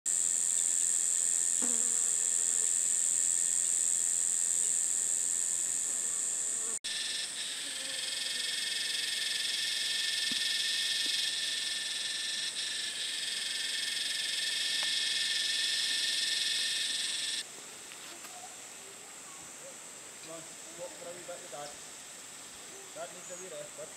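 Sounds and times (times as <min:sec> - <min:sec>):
high-pitched cicada chorus: 0:00.1 - 0:17.5.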